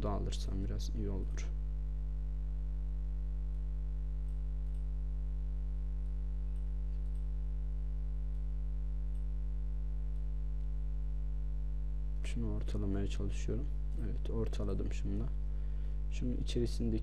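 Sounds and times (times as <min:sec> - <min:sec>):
electrical mains hum: 0:00.0 - 0:17.0
computer mouse clicks: 0:03.5 - 0:04.9, 0:06.0 - 0:07.3.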